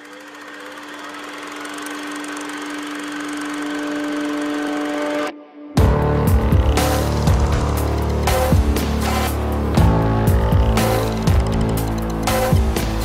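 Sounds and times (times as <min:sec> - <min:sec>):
suv engine humming: 0:05.8 - 0:13.0.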